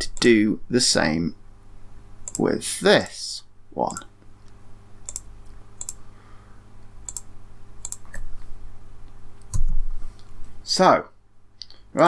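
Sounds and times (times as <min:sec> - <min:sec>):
steady low hum: 0:00.0 - 0:12.0
computer mouse clicking: 0:02.2 - 0:02.4, 0:05.0 - 0:06.0, 0:07.0 - 0:08.3.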